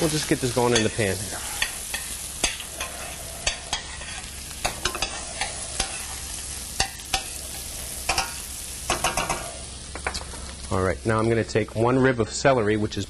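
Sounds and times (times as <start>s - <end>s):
shallot and garlic sizzling: 0.0s - 13.0s
utensil scraping pan: 0.8s - 9.6s.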